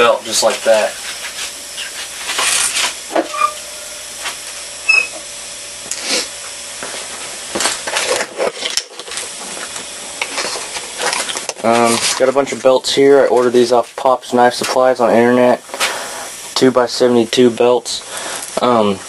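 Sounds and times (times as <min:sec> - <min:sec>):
sanding belt rustling and scraping: 0:00.4 - 0:03.4.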